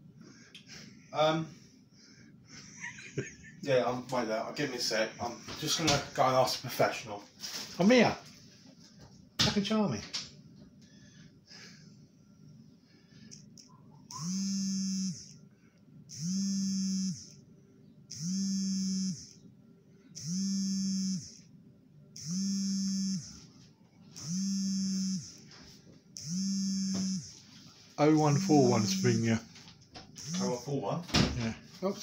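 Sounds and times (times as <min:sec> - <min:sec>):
phone vibrating buzz: 0:14.1 - 0:15.4, 0:16.1 - 0:17.4, 0:18.1 - 0:19.4, 0:20.1 - 0:21.5, 0:22.2 - 0:27.5, 0:28.2 - 0:29.4, 0:30.2 - 0:30.7.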